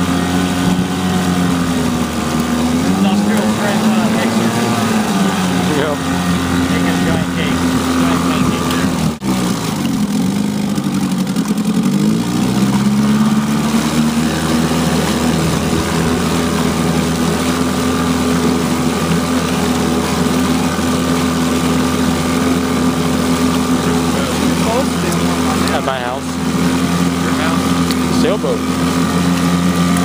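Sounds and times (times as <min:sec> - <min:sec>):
exhaust churning water: 0:00.0 - 0:30.0
outboard motor running: 0:00.0 - 0:30.0.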